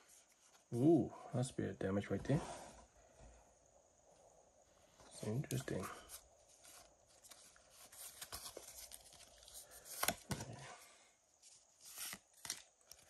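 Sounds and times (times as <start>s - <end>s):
trading cards being flipped: 6.5s - 10.5s, 11.8s - 13.0s.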